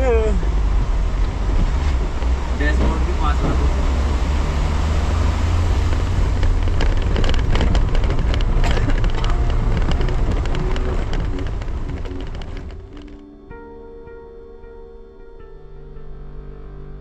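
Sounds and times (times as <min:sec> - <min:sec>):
car engine and road rumble: 0:00.0 - 0:17.0
stones knocking and clattering: 0:05.9 - 0:13.2.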